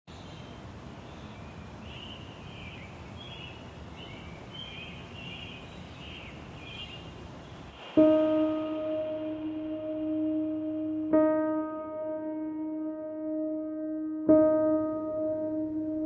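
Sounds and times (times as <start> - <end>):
birds chirping and trilling: 0.1 - 9.4.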